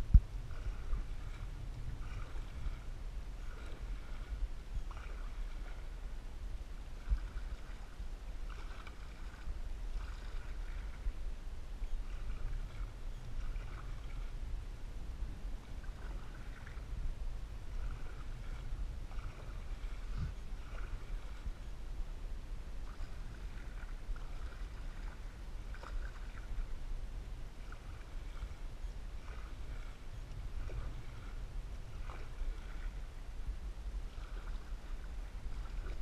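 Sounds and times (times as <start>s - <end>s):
low rumble: 0.0s - 4.9s, 10.6s - 25.8s
paddle strokes splashing: 0.0s - 36.0s.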